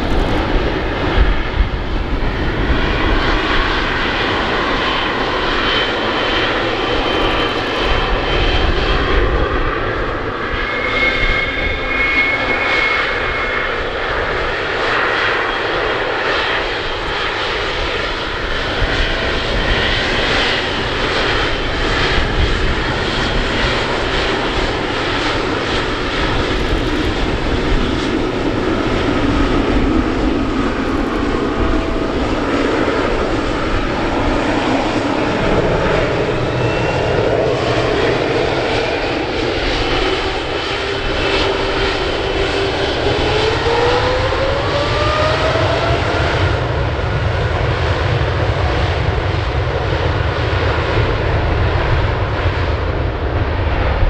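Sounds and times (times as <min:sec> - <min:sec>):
deep jet rumble: 0:00.0 - 0:54.0
jet engine whine climbing: 0:00.0 - 0:54.0.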